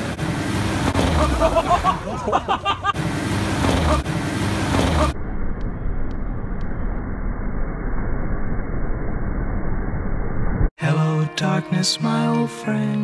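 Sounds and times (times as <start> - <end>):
engine running: 0.0 - 10.7.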